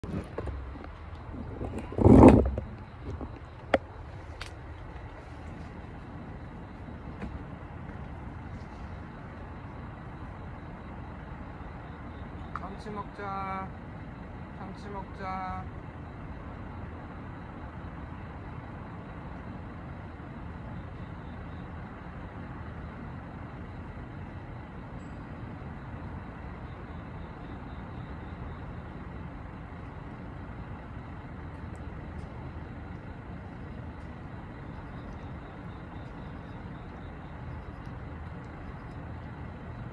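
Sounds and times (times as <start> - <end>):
distant traffic rumble: 0.0 - 39.9.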